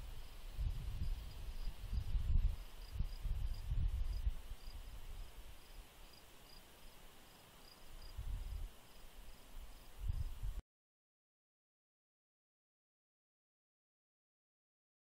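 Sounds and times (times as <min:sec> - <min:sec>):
low gusty rumble: 0:00.0 - 0:05.4, 0:08.0 - 0:08.7
crickets chirping: 0:00.0 - 0:10.4.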